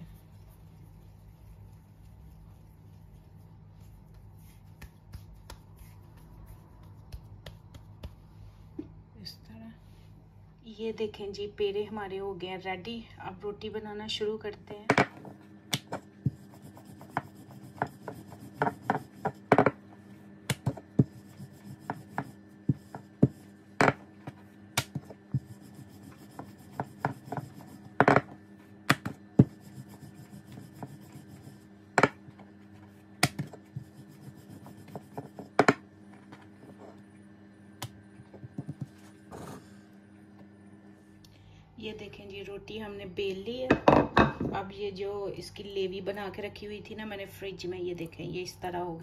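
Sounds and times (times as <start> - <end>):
rolling pin rolling dough: 15.2 - 35.8.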